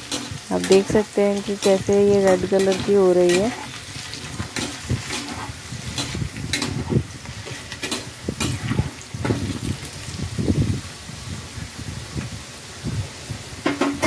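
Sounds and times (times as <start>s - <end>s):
skimmer scraping and clinking on pan: 0.0s - 9.4s
slices sizzling in hot oil: 0.0s - 14.0s.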